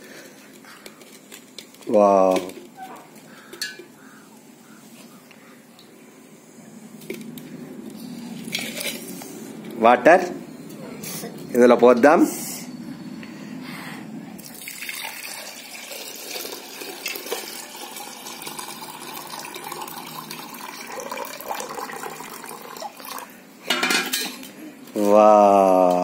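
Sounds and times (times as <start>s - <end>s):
water pouring and splashing: 14.4s - 23.3s.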